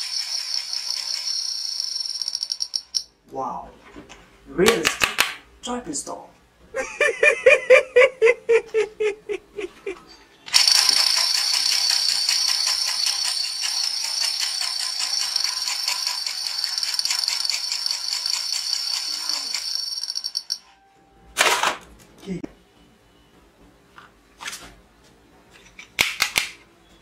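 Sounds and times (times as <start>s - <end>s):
high-pitched rattling buzz: 10.5s - 20.6s.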